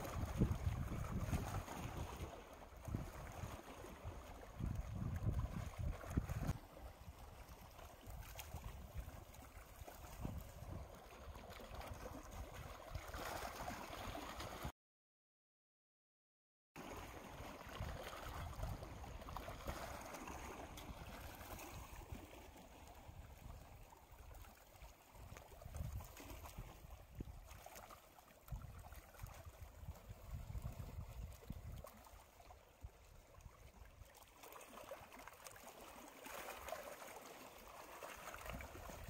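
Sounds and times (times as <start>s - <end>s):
waves lapping on rocky shore: 0.0s - 14.7s, 16.8s - 39.0s
wind rumble on microphone: 0.0s - 14.7s, 17.6s - 23.9s, 25.2s - 27.6s, 28.5s - 32.0s, 38.3s - 39.0s.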